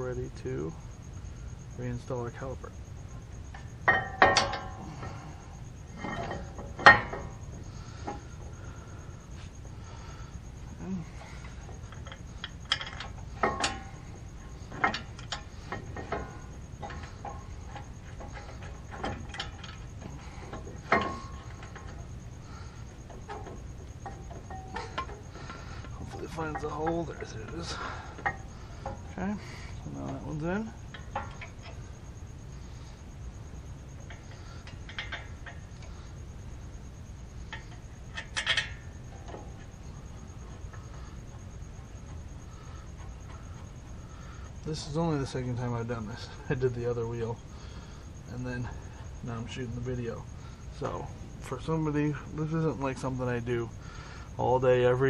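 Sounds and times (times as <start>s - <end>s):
metallic clicks and knocks: 3.5s - 4.8s, 6.0s - 8.5s, 11.4s - 22.2s, 22.8s - 29.2s, 30.0s - 31.9s, 33.9s - 36.0s, 37.4s - 46.7s.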